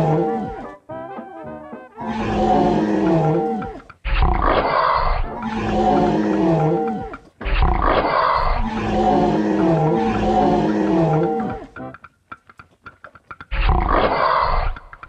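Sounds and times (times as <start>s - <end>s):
dinosaur rough roar: 0.0s - 0.7s, 2.0s - 11.8s, 13.5s - 14.8s
dinosaur moaning call: 0.0s - 0.8s, 2.0s - 12.0s.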